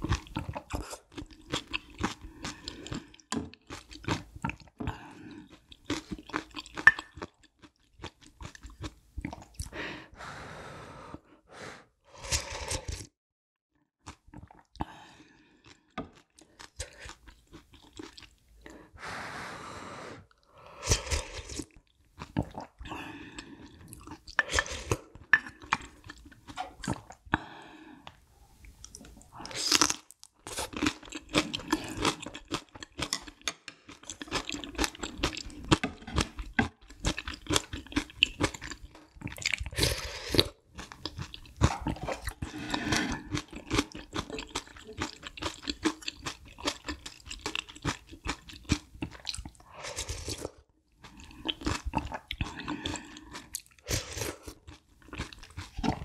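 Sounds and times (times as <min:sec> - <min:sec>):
person crunching and chewing: 0:00.0 - 0:04.8, 0:05.4 - 0:09.7, 0:15.6 - 0:18.4, 0:23.6 - 0:27.2, 0:28.8 - 0:56.0
slurping soup from a spoon: 0:11.1 - 0:13.2.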